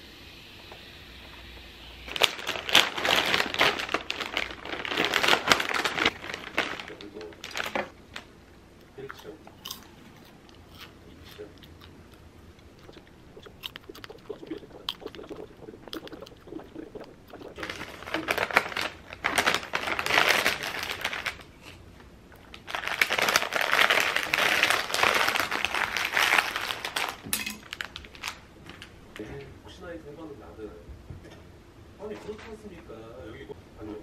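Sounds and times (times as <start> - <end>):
plastic snack bag crinkling: 2.1 - 8.3, 12.6 - 21.5, 22.3 - 28.9
chewing popcorn: 8.9 - 21.4, 22.3 - 27.2.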